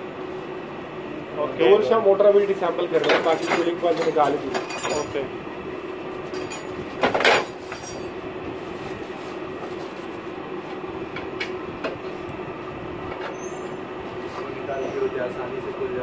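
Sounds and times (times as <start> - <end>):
steady mechanical hum: 0.0 - 16.0
metal parts clattering: 3.0 - 5.2.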